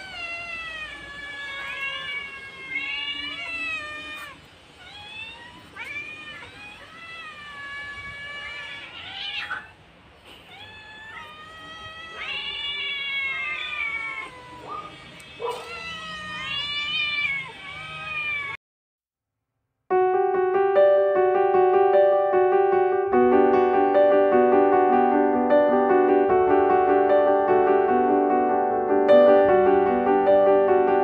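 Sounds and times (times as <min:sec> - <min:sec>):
cats meowing: 0:00.0 - 0:18.6.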